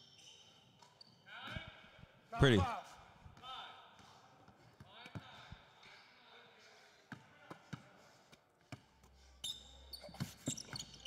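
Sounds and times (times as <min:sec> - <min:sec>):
sneakers squeaking on court: 0:00.0 - 0:01.6, 0:08.7 - 0:11.0.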